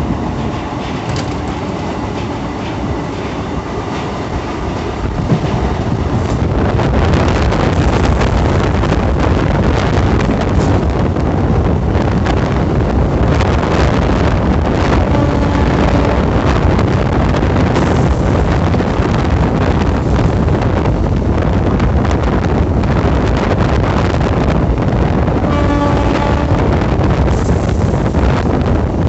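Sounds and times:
train wheels rumbling on track: 0:00.0 - 0:29.0
wind buffeting microphone: 0:00.0 - 0:29.0
short horn-like tone: 0:15.0 - 0:16.3, 0:25.4 - 0:26.7.

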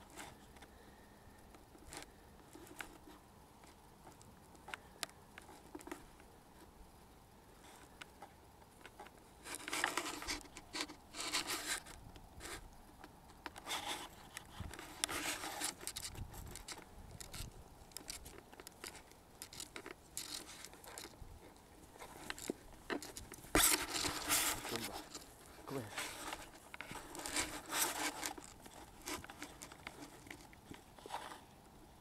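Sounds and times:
rustling through undergrowth: 0:07.6 - 0:32.0.

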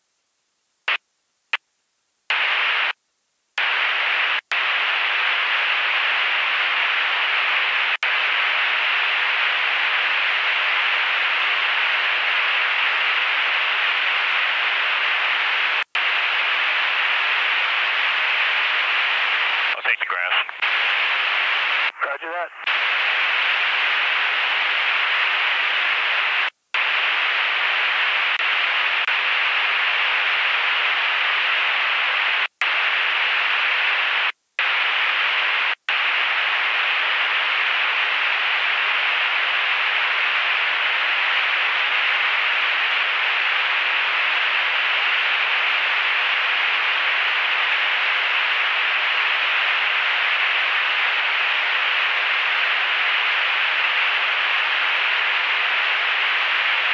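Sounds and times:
radio static hiss: 0:00.8 - 0:01.6, 0:02.3 - 0:03.0, 0:03.6 - 0:56.9.

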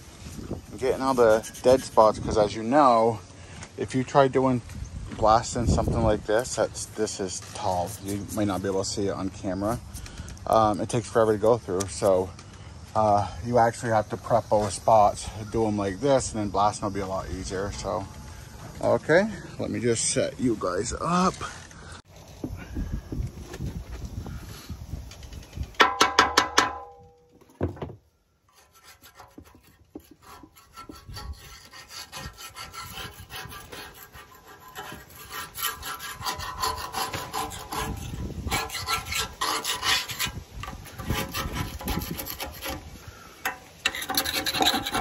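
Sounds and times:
paint scraper scraping metal: 0:00.4 - 0:03.2, 0:05.4 - 0:12.3, 0:13.6 - 0:20.2, 0:28.4 - 0:45.0.

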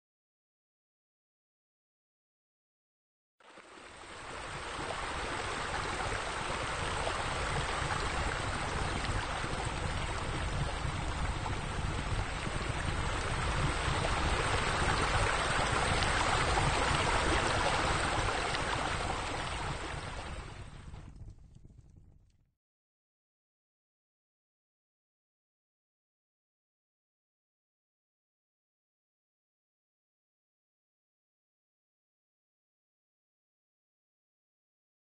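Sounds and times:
steady rushing noise: 0:04.2 - 0:21.2.

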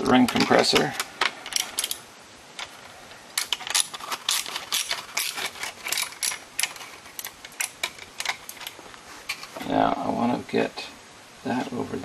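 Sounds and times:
metallic clicks and clinks: 0:00.0 - 0:02.0, 0:03.4 - 0:09.5.

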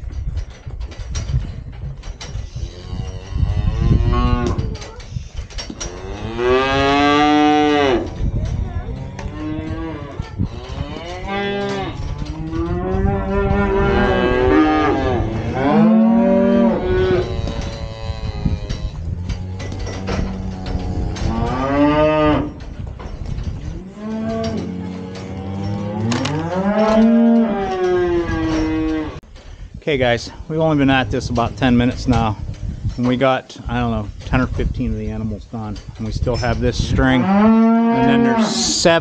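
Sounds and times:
cattle mooing: 0:37.2 - 0:38.8.

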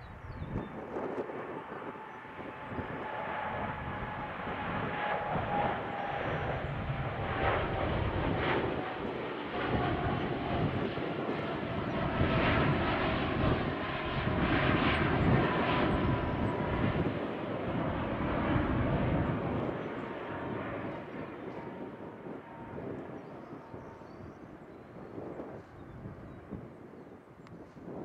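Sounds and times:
faint high engine whine: 0:00.0 - 0:28.0
jet engine roar: 0:00.0 - 0:28.0.

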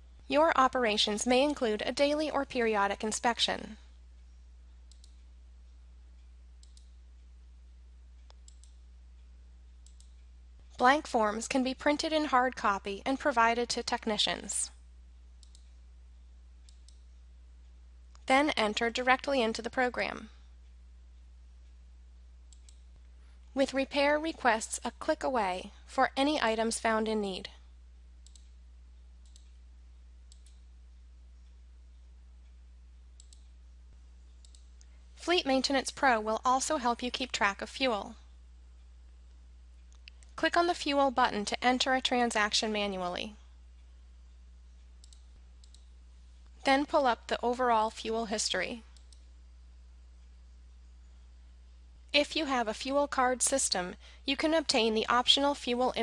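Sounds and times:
steady low hum: 0:00.0 - 0:56.0
computer mouse clicks: 0:04.9 - 0:05.3, 0:06.2 - 0:07.0, 0:08.2 - 0:08.8, 0:09.7 - 0:10.3, 0:15.4 - 0:15.8, 0:16.6 - 0:17.2, 0:22.5 - 0:23.1, 0:28.2 - 0:28.6, 0:29.2 - 0:29.6, 0:30.3 - 0:30.7, 0:33.2 - 0:33.6, 0:34.3 - 0:35.0, 0:44.8 - 0:45.9, 0:48.9 - 0:49.3.

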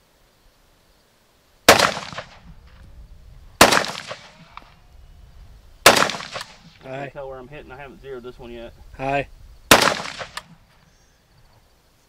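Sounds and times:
rifle shots with echo: 0:01.7 - 0:02.5, 0:03.6 - 0:04.7, 0:05.8 - 0:06.8, 0:09.7 - 0:10.6.

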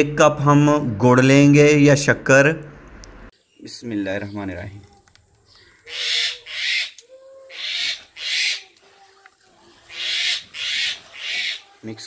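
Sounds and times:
bird cooing faintly: 0:05.4 - 0:11.8.

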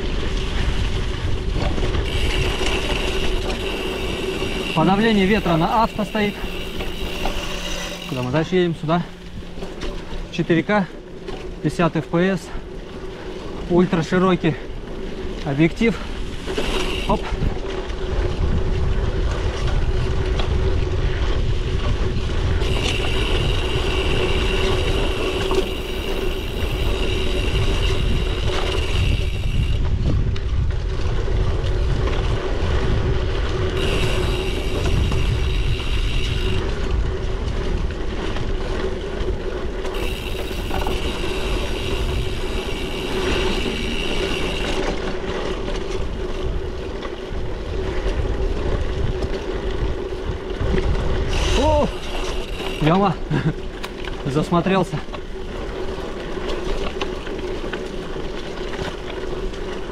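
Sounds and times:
bicycle tyres rumbling on road: 0:00.0 - 0:59.9
freewheel ticking buzz: 0:00.2 - 0:10.9, 0:15.5 - 0:30.1, 0:33.3 - 0:59.9.

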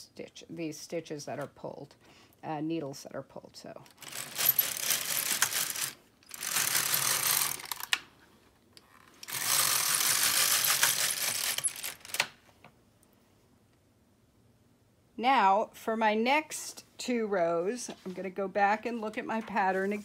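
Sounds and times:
knitting machine carriage rattling: 0:03.9 - 0:07.9, 0:09.2 - 0:12.3.

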